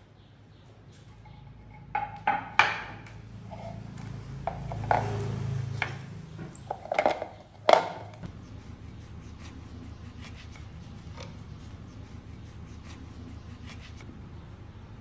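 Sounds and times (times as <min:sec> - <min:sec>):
kitchen items scraping: 0:03.4 - 0:08.3.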